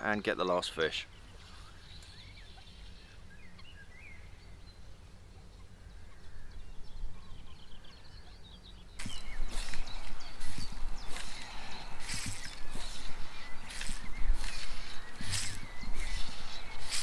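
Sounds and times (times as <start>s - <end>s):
birds chirping faintly: 0.0s - 17.0s
low rumble of wind: 1.1s - 17.0s
rustling noise: 9.0s - 17.0s.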